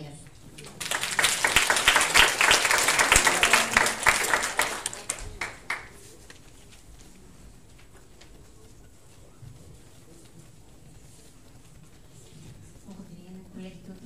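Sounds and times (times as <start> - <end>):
audience applauding: 0.5 - 6.2.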